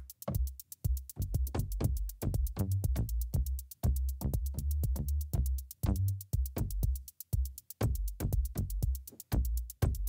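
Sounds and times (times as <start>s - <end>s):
fast hi-hat ticks: 0.0s - 10.0s
kick drum and bass: 0.0s - 10.0s.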